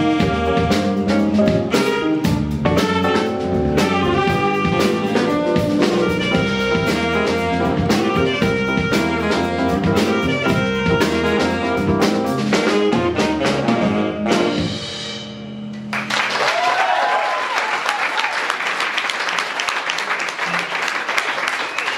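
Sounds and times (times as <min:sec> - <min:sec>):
jazz band playing: 0:00.0 - 0:16.0
audience applause: 0:15.9 - 0:21.9
audience cheering: 0:15.9 - 0:21.9.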